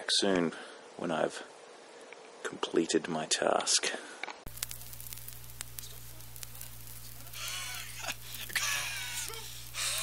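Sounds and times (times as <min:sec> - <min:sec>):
steady low hum: 0:04.5 - 0:10.0
man breathing hard with wheeze: 0:07.4 - 0:10.0.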